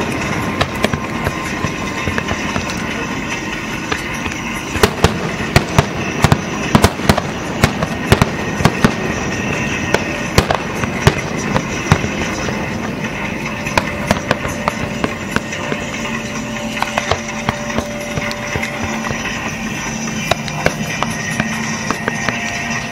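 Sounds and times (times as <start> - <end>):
firework bangs and crackles: 0.0 - 22.9.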